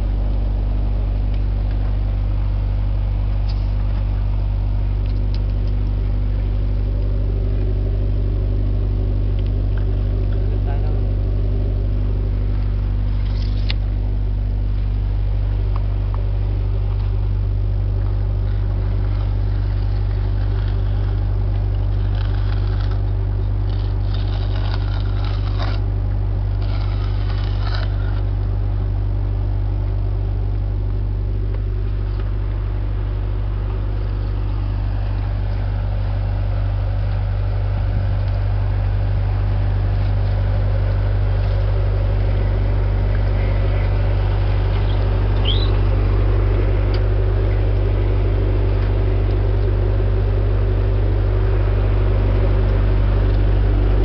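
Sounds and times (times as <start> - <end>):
drilling rig engine drone: 0.0 - 54.0
metallic scraping and clinking: 18.5 - 25.9, 26.5 - 28.4.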